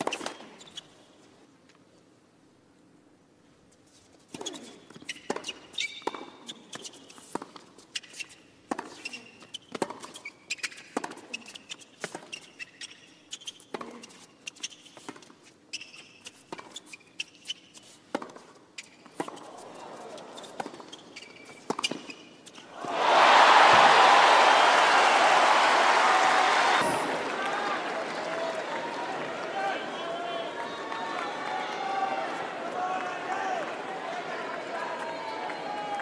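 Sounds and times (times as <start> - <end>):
sneakers squeaking on court: 0.0 - 1.2, 4.3 - 22.7
racket hitting tennis ball: 18.1 - 24.2
crowd murmur: 22.8 - 36.0.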